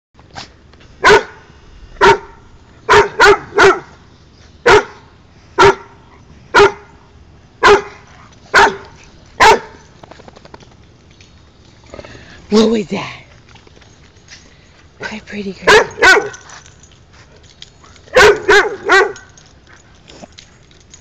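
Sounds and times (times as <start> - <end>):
dog barking: 1.0 - 1.4, 2.0 - 3.9, 4.6 - 5.0, 5.6 - 6.9, 7.6 - 8.8, 9.4 - 9.8, 15.7 - 16.4, 18.1 - 19.3.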